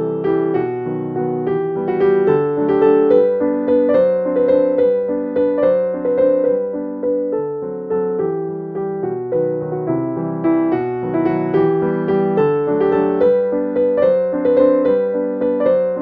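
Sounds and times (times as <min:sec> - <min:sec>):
background piano music: 0:00.0 - 0:16.0.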